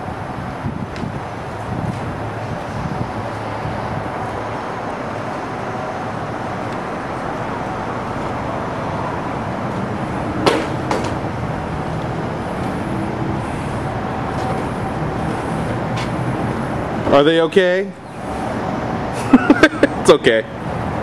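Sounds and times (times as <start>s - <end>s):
distant traffic rumble: 0.0s - 21.0s
sharp knocks: 10.4s - 11.2s.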